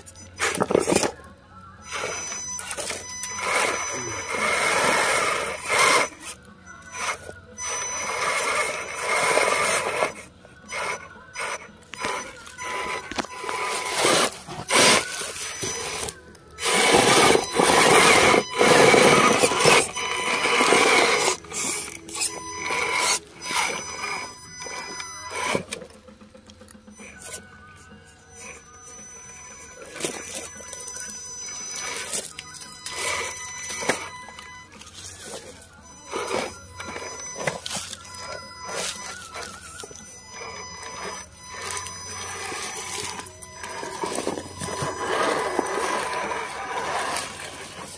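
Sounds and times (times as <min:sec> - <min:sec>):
electric motor whining: 0:00.0 - 0:47.9
tyres scraping over rock: 0:07.0 - 0:25.8, 0:34.8 - 0:47.9.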